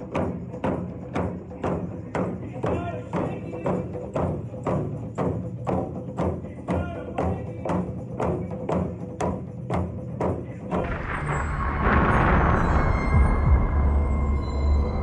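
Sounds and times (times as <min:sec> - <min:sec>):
large drum struck in unison: 0:10.6 - 0:14.0.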